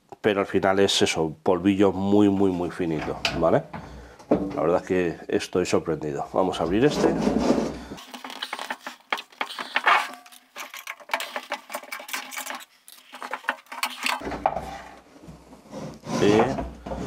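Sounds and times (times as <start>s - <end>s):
metal bin clinks and scrapes: 6.7s - 15.0s.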